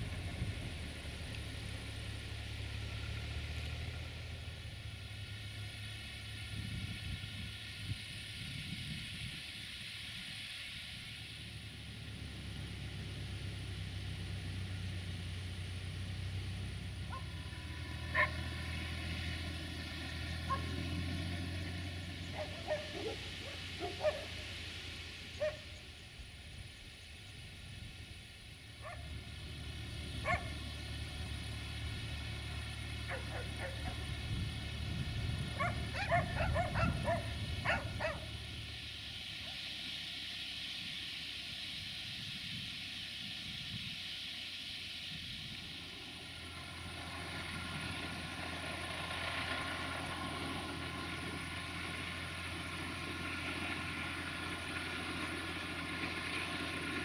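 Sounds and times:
steady low hum: 0:00.0 - 0:57.0
dog barking: 0:18.1 - 0:18.4, 0:20.5 - 0:20.7, 0:22.4 - 0:24.3, 0:25.4 - 0:25.6, 0:28.8 - 0:29.0, 0:30.2 - 0:30.5, 0:33.1 - 0:34.0, 0:35.6 - 0:38.3.

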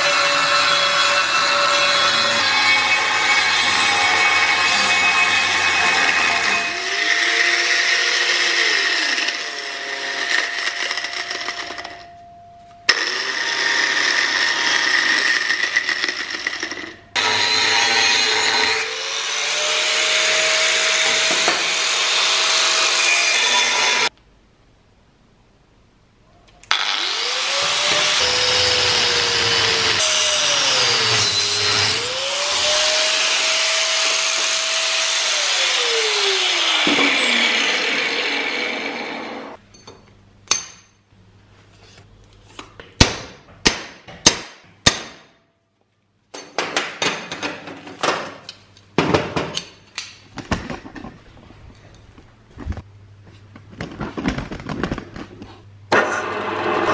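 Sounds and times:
angle grinder cutting steel: 0:00.0 - 0:11.9, 0:12.9 - 0:24.1, 0:26.7 - 0:39.6.

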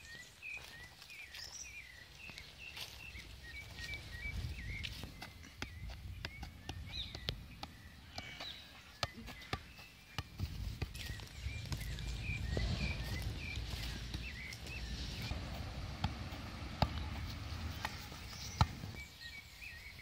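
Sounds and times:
small birds chirping: 0:00.0 - 0:20.0
soccer ball kicks: 0:04.8 - 0:19.1
low rumble: 0:10.8 - 0:19.0.

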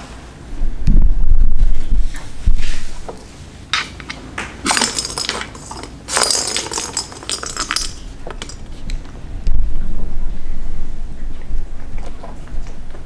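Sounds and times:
ball with bell rattling and jingling: 0:04.7 - 0:08.7.

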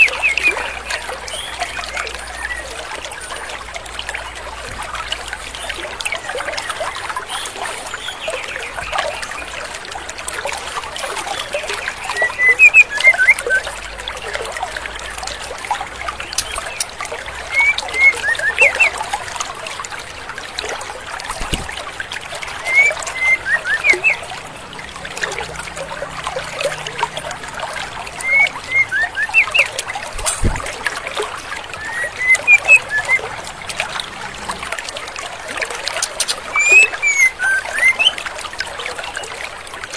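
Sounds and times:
stream rushing: 0:00.0 - 0:39.9
bird calling high notes: 0:12.1 - 0:13.7, 0:17.5 - 0:19.0, 0:22.7 - 0:24.3, 0:28.2 - 0:29.8, 0:31.8 - 0:33.3, 0:36.0 - 0:38.2.

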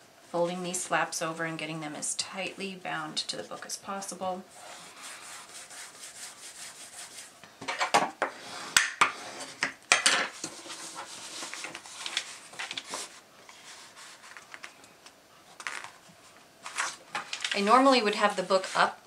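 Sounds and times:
plastic film rustling and crinkling: 0:10.4 - 0:14.8, 0:15.5 - 0:19.0.

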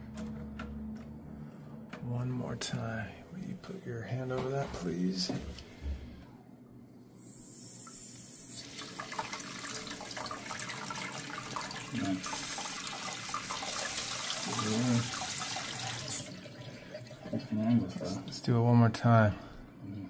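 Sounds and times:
water hissing into toilet tank: 0:07.2 - 0:18.3.

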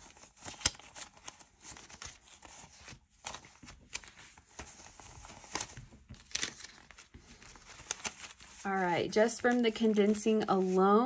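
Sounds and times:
banknotes rustling: 0:00.0 - 0:11.0
banknotes snapping: 0:00.4 - 0:01.3.

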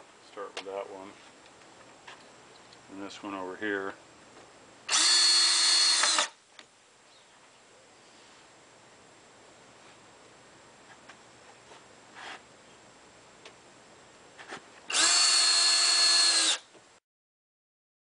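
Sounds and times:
cordless drill whining: 0:04.9 - 0:06.4, 0:14.9 - 0:16.7.

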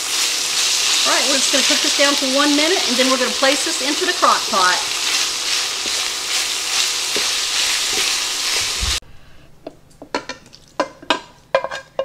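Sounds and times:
meat and onions sizzling in pan: 0:00.0 - 0:09.0
wooden spoon scraping a pan: 0:05.0 - 0:08.8, 0:10.1 - 0:12.0.

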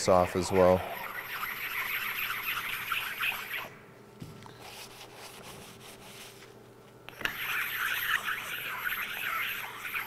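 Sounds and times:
stone rasping on steel: 0:00.6 - 0:03.7, 0:07.2 - 0:10.0.

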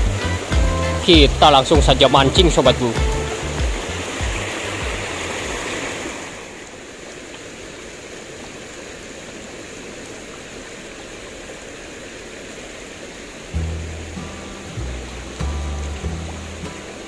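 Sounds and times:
music with low bass: 0:00.0 - 0:05.1, 0:13.6 - 0:17.0
river rushing over rocks: 0:00.0 - 0:17.0.

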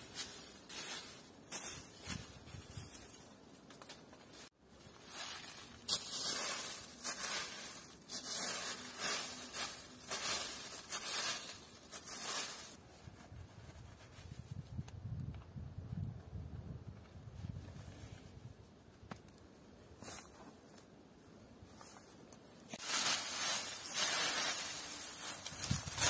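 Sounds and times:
rustling scraping strokes: 0:05.0 - 0:14.7, 0:22.7 - 0:26.0.

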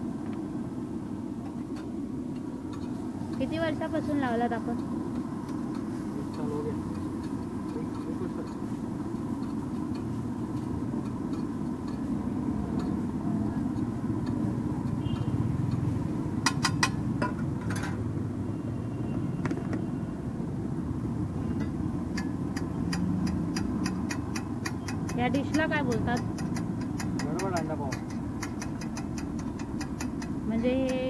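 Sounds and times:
quick spatula taps: 0:21.6 - 0:31.0.

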